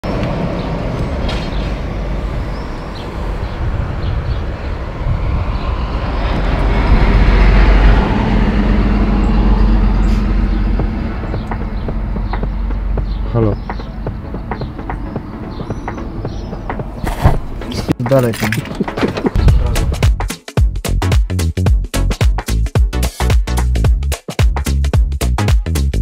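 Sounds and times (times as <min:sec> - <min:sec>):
passing vehicle rumble: 0:00.0 - 0:18.0
steady low hum: 0:00.2 - 0:17.6.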